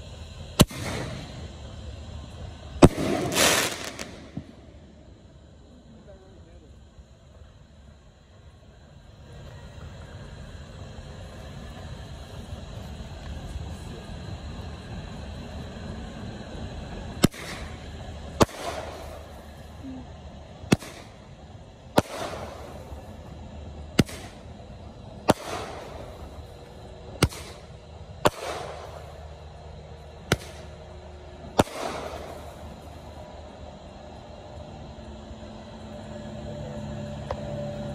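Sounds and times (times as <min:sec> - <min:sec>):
firework crackle: 0:00.0 - 0:37.9
firework burst bang: 0:00.6 - 0:01.5, 0:02.8 - 0:04.8, 0:17.2 - 0:19.4, 0:20.7 - 0:21.2, 0:21.9 - 0:23.0, 0:23.9 - 0:24.5, 0:25.2 - 0:26.4, 0:27.2 - 0:29.2, 0:30.2 - 0:30.8, 0:31.5 - 0:32.6
firework launch thump: 0:02.8 - 0:04.7, 0:30.3 - 0:30.7.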